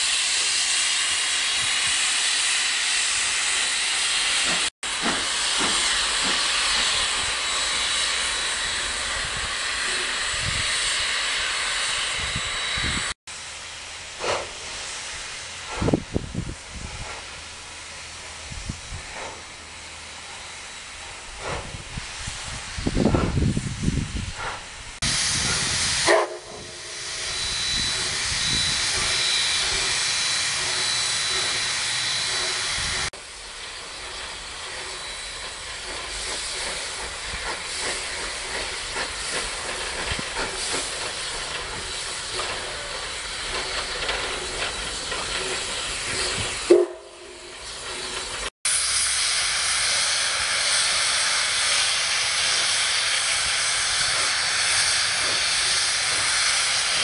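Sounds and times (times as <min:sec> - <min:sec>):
pitched steam blasts: 0:00.0 - 0:57.0
steam locomotive hissing: 0:00.0 - 0:57.0.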